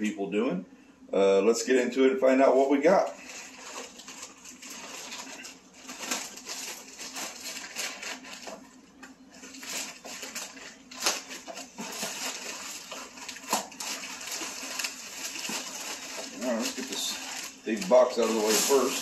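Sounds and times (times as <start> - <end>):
plastic bag crinkling and ripping: 2.8 - 19.0.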